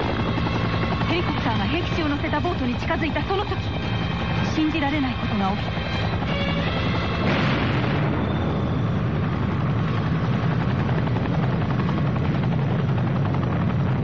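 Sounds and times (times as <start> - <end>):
helicopter rotor chopping: 0.0 - 14.0
explosion: 7.2 - 8.9.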